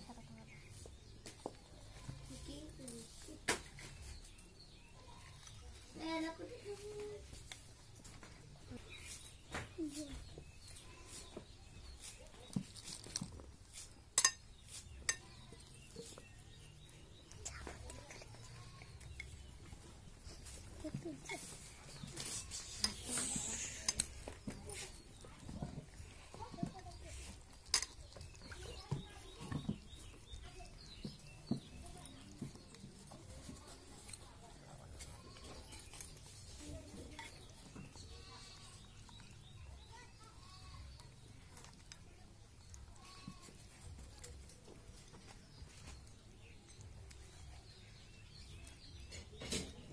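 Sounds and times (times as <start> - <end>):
bowls and utensils knocking: 14.2 - 15.4.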